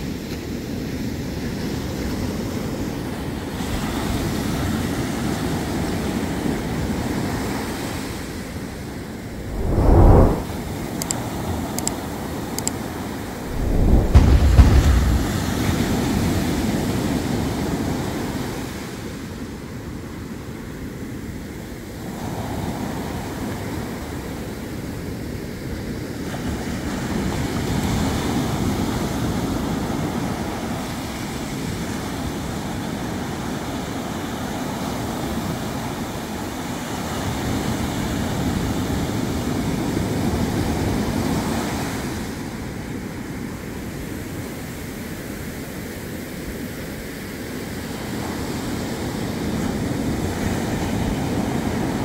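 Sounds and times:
waves breaking on sand: 13.5 - 16.1.

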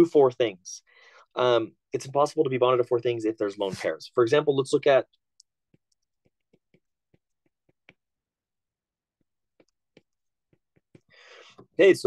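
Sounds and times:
stylus tapping on glass screen: 5.4 - 8.2, 9.2 - 11.1.

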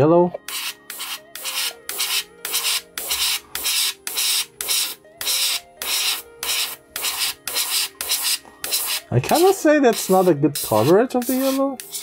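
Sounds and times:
airbrush air hissing in pulses: 0.5 - 12.0.

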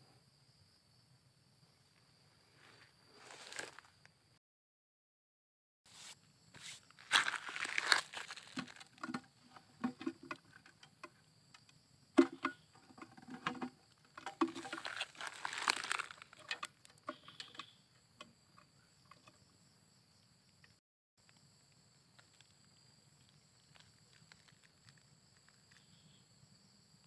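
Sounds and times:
rustling: 5.9 - 9.2, 14.2 - 16.7
scraping: 6.0 - 10.8, 12.2 - 17.7.

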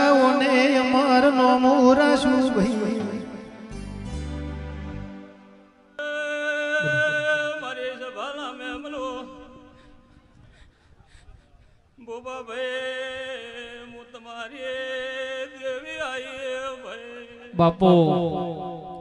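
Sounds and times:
man singing held notes: 6.7 - 7.6.

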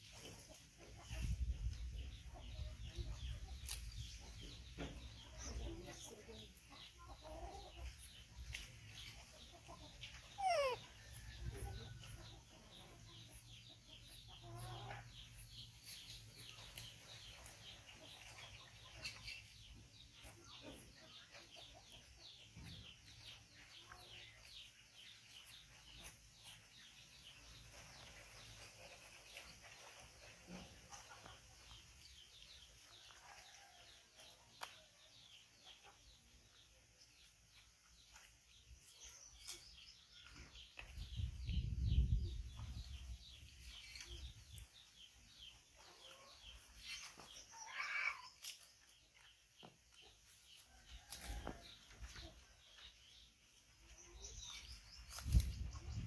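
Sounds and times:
small birds chirping: 0.0 - 56.0
birds chirping rapidly: 9.9 - 11.3.

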